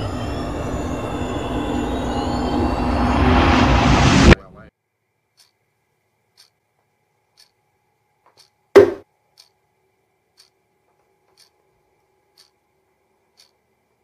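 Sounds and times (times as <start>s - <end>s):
clock ticking: 5.3s - 5.6s, 6.3s - 6.6s, 7.3s - 7.6s, 8.3s - 9.6s, 10.3s - 10.6s, 11.3s - 11.6s, 12.3s - 12.6s, 13.3s - 13.6s
loud short thump: 8.8s - 9.1s.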